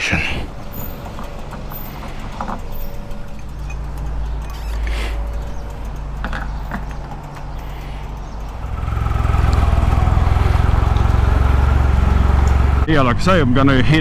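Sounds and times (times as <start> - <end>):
fuel nozzle clicks: 0.5 - 8.8
motorcycle engine running: 0.5 - 12.9.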